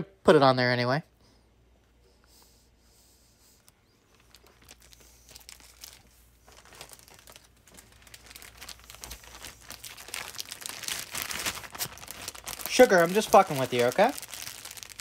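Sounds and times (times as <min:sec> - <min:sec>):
plastic packaging crinkling: 0:04.0 - 0:15.0.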